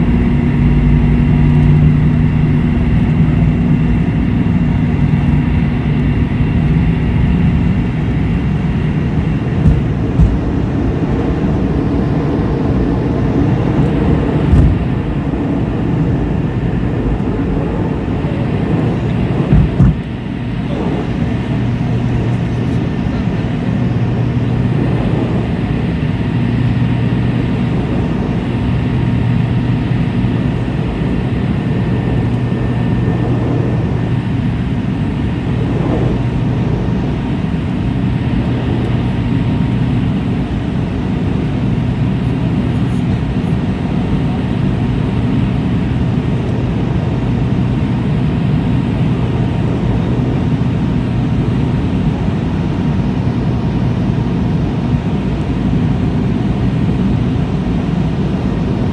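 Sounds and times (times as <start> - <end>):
air rushing along fuselage: 0.0 - 58.9
high engine whine: 0.0 - 58.9
jet engines droning: 0.0 - 58.9.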